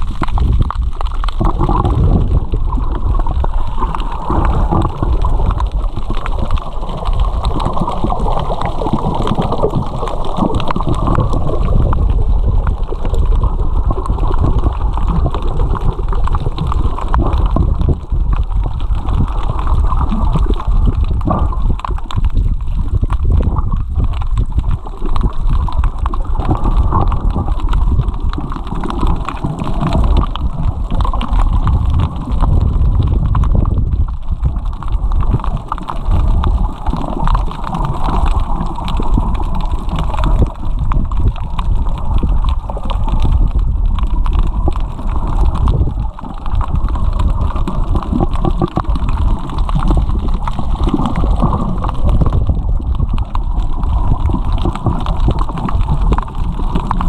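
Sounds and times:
muffled underwater water rumble: 0.0 - 57.0.

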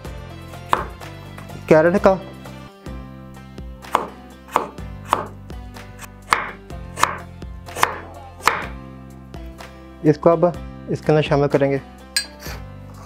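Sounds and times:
knife chopping on wooden board: 0.7 - 1.1, 3.8 - 5.4, 6.0 - 8.8.

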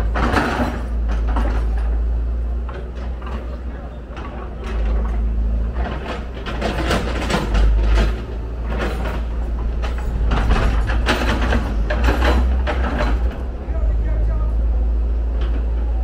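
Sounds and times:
diesel engine under load: 0.0 - 16.0
irregular clattering: 4.2 - 13.6.

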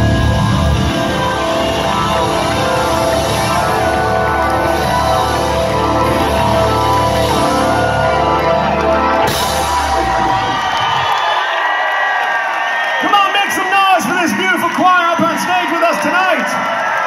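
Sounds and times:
live rock band: 0.0 - 11.7
crowd whooping and cheering: 0.0 - 17.0.

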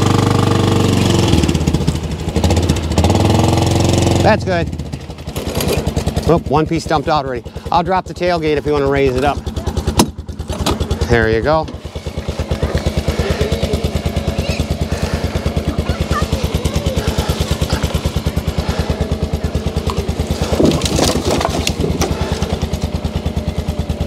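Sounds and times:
utility vehicle engine idling: 0.0 - 24.0
logs clattering onto ground: 19.9 - 22.6.

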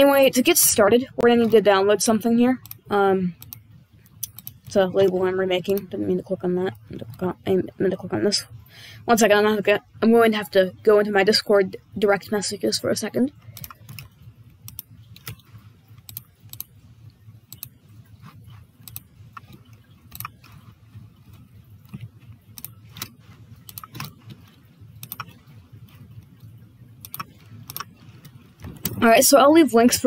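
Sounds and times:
low steady hum: 0.0 - 30.0
computer keyboard typing: 2.6 - 7.4, 13.4 - 16.8, 17.4 - 29.3.

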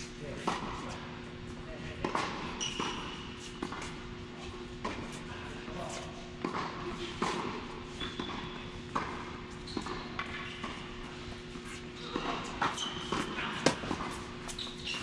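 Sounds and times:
tennis ball bouncing on court: 0.4 - 0.9, 2.0 - 4.0, 6.4 - 11.1, 12.1 - 14.9
tennis ball struck by rackets: 6.4 - 10.8, 12.1 - 14.3
short high squeaks: 14.5 - 15.0.

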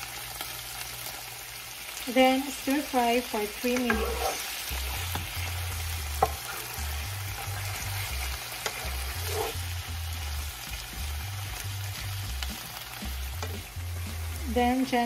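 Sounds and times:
food sizzling in hot oil: 0.0 - 15.0
background music bass line: 4.7 - 15.0.

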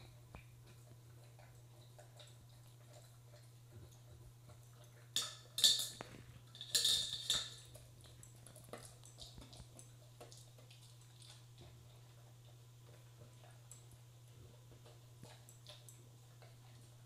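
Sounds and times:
dog chewing kibble: 0.0 - 17.0
metal bowl clattering: 5.2 - 7.7.

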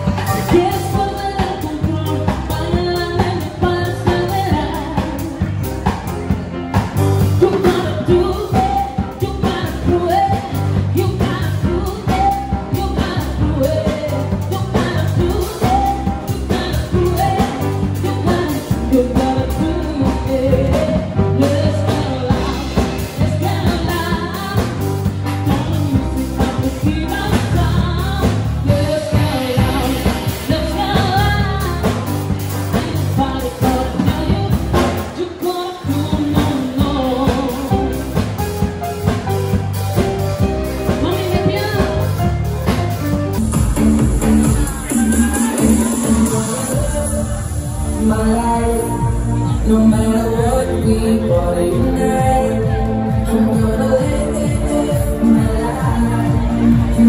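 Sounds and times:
woman singing into a microphone: 0.0 - 6.3, 7.0 - 39.5, 40.4 - 42.8, 44.6 - 57.0
drum kit: 0.0 - 57.0
grand piano: 0.0 - 57.0.

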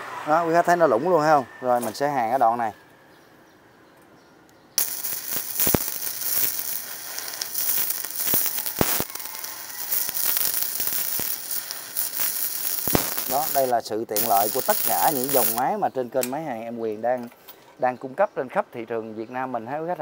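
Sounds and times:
welding arc crackling with pops: 4.8 - 16.5.

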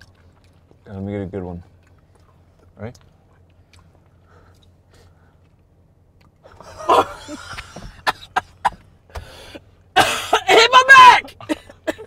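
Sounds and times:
woman coughing: 6.8 - 8.8, 10.0 - 12.0.

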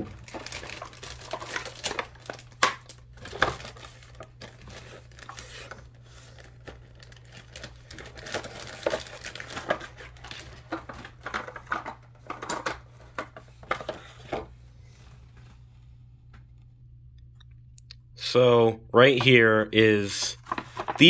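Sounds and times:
plastic packaging crinkling: 0.0 - 14.4, 20.4 - 21.0
steady low hum: 0.0 - 21.0.

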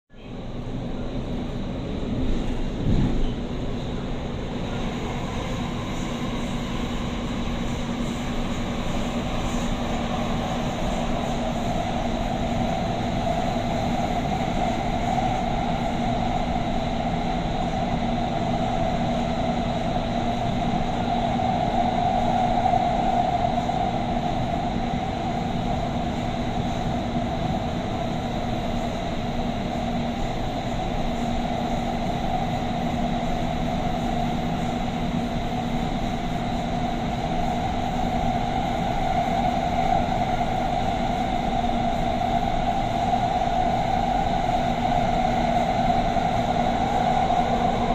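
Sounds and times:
steady low hum: 0.1 - 47.9
train rumbling in tunnel: 0.1 - 47.9.

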